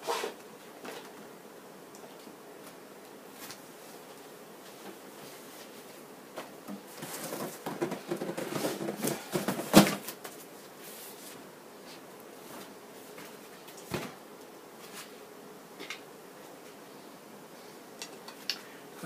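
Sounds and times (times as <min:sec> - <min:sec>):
rustling and clattering of objects: 0:02.0 - 0:14.2.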